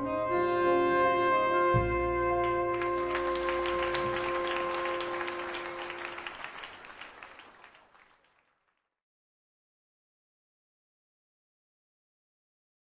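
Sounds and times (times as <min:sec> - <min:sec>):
audience applauding: 0:02.4 - 0:08.9.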